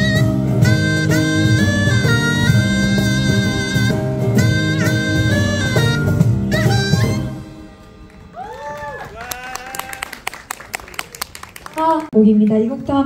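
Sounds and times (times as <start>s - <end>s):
wind instrument melody: 0.0s - 8.3s
low accompaniment: 0.0s - 8.4s.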